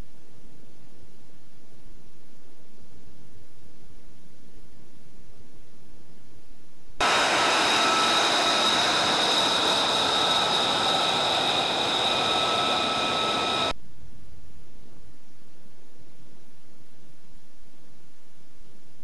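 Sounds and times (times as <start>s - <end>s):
jet engine roar: 7.0s - 13.7s.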